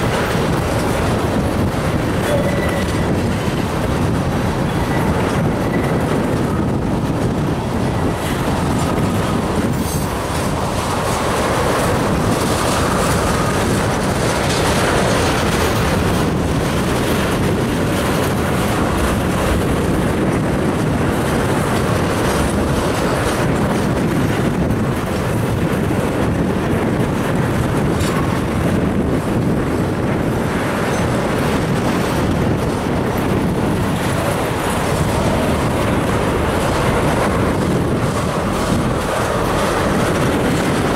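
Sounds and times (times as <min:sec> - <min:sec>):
clickety-clack over track joints: 0:00.0 - 0:40.9
train wheels rumbling on rail: 0:00.0 - 0:40.9.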